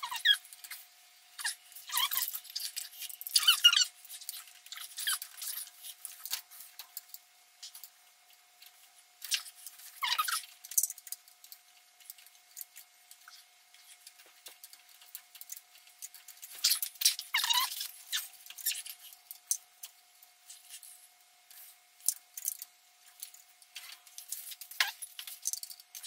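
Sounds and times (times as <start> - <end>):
faint steady hum: 0.0 - 26.0
short squeaks of linkage: 1.4 - 3.9, 16.6 - 18.9.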